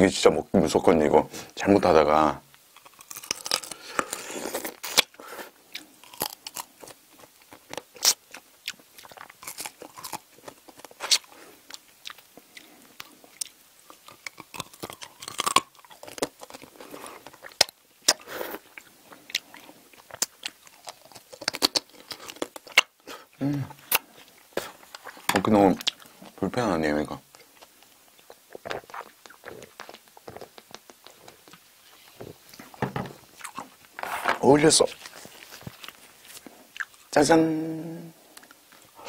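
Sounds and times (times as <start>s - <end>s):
chewing with crunches: 2.7s - 26.4s, 27.3s - 34.0s, 34.9s - 37.2s
wet mouth sounds: 28.2s - 31.6s.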